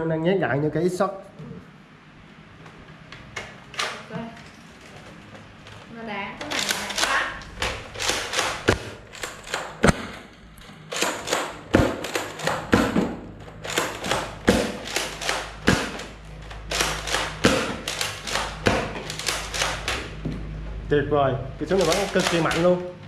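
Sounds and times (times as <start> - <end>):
toy blaster firing thuds: 10.9 - 16.1, 16.7 - 20.1
plastic clicking and rattling: 21.7 - 22.7.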